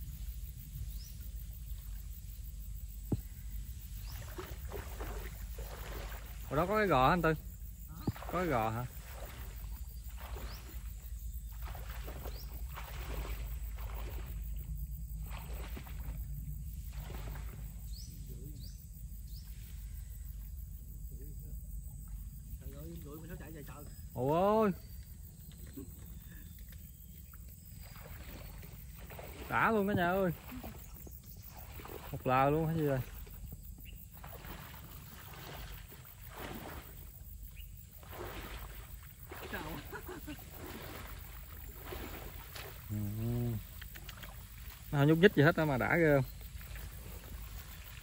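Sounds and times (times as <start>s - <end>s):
water sloshing: 2.9s - 18.2s, 22.0s - 48.0s
rustling marsh grass: 34.2s - 42.9s, 46.3s - 48.0s.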